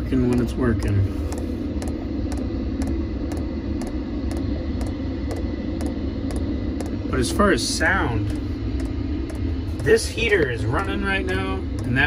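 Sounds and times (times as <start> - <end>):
fuel pump ticking: 0.0 - 12.0
heater fan hum: 0.0 - 12.0.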